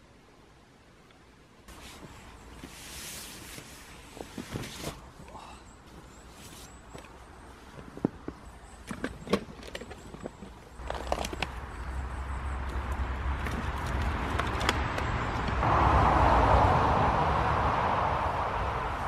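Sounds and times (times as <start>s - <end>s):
camping gear clicking and rustling: 1.7s - 15.6s
car passing on road: 11.6s - 19.0s.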